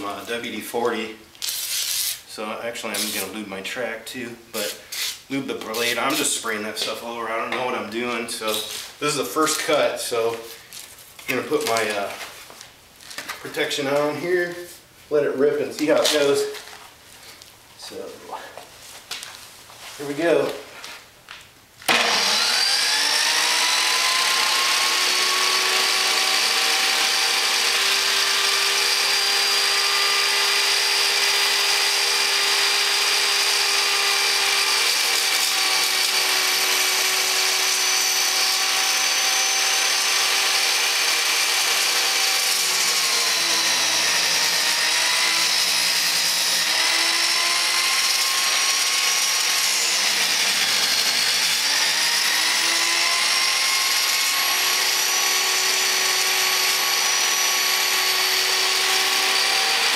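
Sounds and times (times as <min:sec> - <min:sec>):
table saw blade whining: 0:21.8 - 0:59.9.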